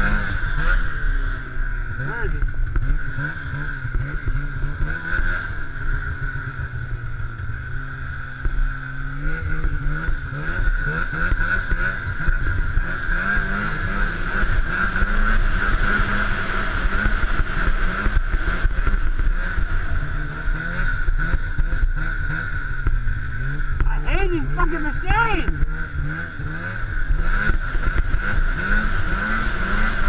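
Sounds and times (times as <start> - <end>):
snowmobile engine running: 0.0 - 30.0
steady high whine: 11.8 - 30.0.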